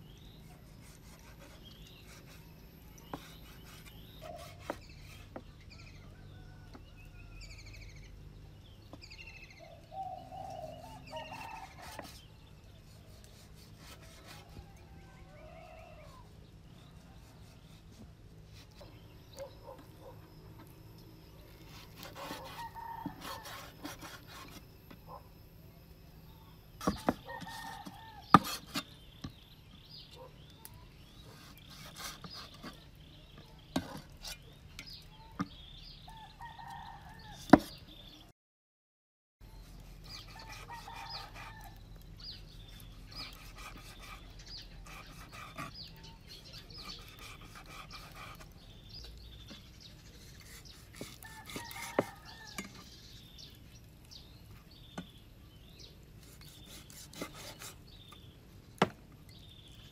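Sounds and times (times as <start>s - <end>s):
knife cutting raw meat: 0.8s - 5.4s, 12.9s - 14.6s, 21.6s - 24.7s, 39.6s - 41.8s, 42.5s - 48.5s, 50.2s - 52.9s, 56.2s - 57.8s
chickens clucking and crowing: 26.9s - 28.4s, 51.1s - 53.0s.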